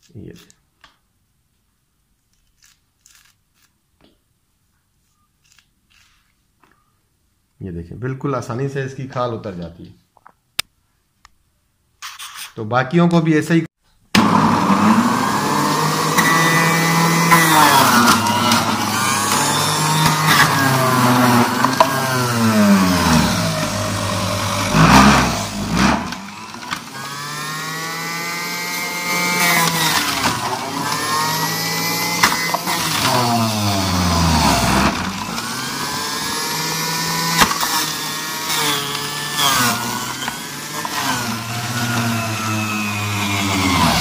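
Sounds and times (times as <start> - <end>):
juicer motor whining: 14.2 - 44.0.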